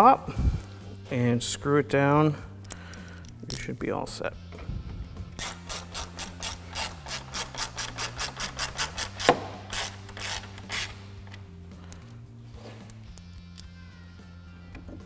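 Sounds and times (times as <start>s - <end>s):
hand ratchet clicking: 5.4s - 11.4s.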